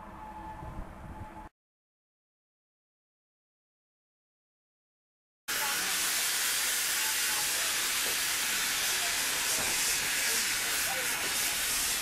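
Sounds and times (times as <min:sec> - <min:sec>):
steam hissing from locomotive: 0:05.5 - 0:12.0.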